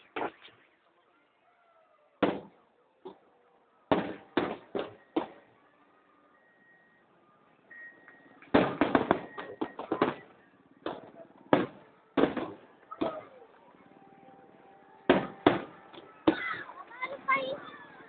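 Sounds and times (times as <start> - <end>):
fireworks bursting: 0.0 - 1.0, 2.2 - 5.6, 8.0 - 13.3, 15.0 - 17.5
fireworks crackling: 0.0 - 1.0, 3.8 - 5.5, 8.2 - 13.7, 15.0 - 17.6.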